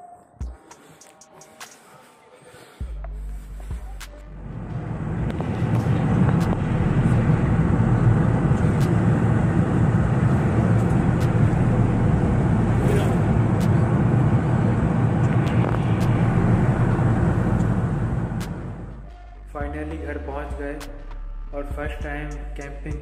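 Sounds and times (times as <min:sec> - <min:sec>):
car engine and road rumble: 0:03.0 - 0:23.0.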